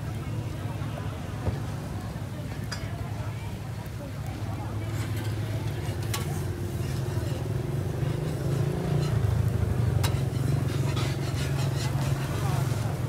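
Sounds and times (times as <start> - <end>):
engine running low rumble: 6.3 - 13.0.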